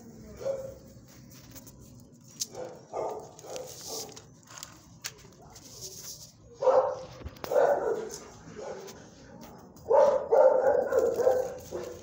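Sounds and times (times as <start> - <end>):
dog barking: 0.4 - 0.8, 2.5 - 4.2, 6.6 - 9.0, 9.8 - 12.0.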